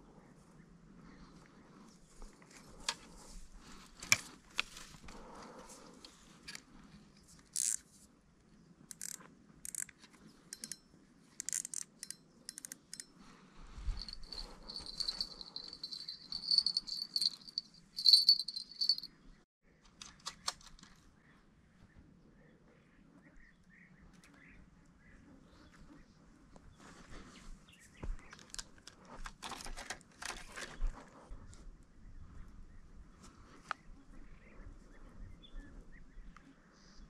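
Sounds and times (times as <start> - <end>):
fishing tackle clicks and rattles: 11.4 - 13.0, 14.0 - 19.1
high pulsing ringing trill: 14.0 - 19.1.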